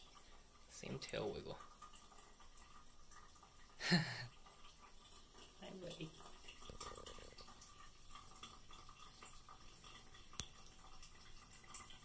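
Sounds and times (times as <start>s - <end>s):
cat lapping water: 0.0s - 12.0s
tap water trickling into sink: 0.0s - 12.0s.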